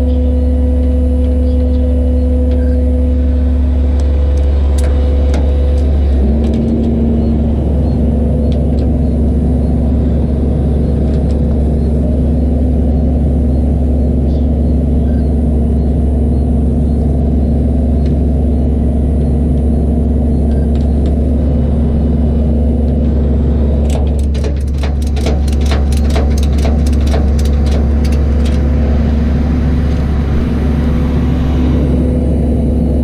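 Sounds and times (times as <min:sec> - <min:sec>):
truck engine running: 0:00.0 - 0:33.0
sharp clicks: 0:23.8 - 0:29.0.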